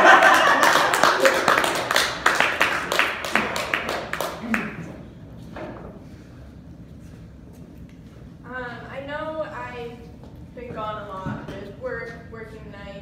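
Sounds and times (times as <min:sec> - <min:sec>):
audience clapping: 0:00.0 - 0:05.0.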